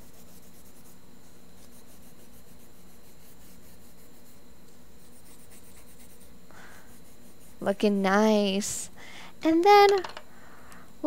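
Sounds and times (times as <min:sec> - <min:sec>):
pencil scribbling on paper: 0:00.0 - 0:01.0, 0:01.6 - 0:04.4, 0:05.0 - 0:07.7.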